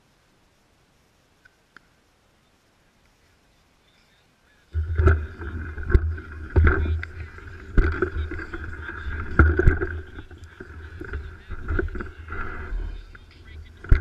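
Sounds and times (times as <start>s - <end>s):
muffled bike rumble: 4.8s - 14.0s.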